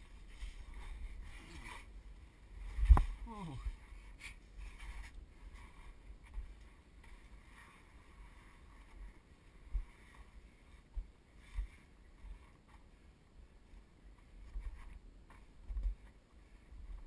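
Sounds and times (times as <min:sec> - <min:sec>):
clothing scraping on rock: 0:00.0 - 0:13.1.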